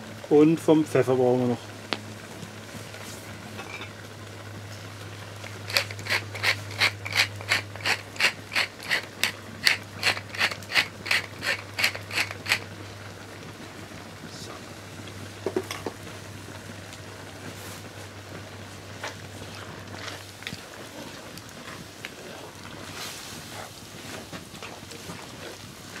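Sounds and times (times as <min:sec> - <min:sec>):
pepper mill grinding clicks: 0:05.5 - 0:12.6.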